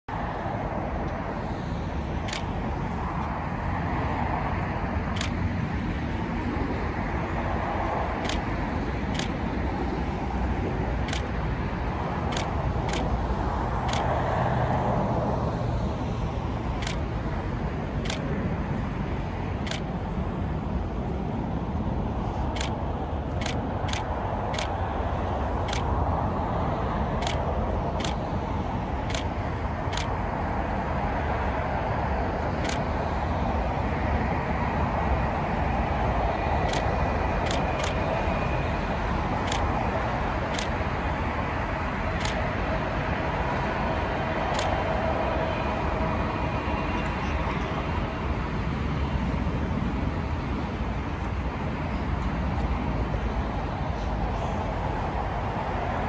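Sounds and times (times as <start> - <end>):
road traffic rumble: 0.0 - 56.0
airport noise: 0.1 - 56.0
faint sharp ticks: 16.8 - 17.0, 39.5 - 39.7.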